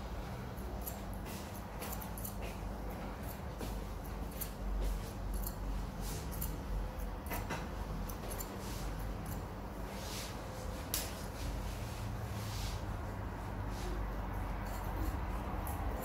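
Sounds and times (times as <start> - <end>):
scissors snipping hair: 0.5 - 9.5, 10.9 - 11.3, 14.3 - 16.0.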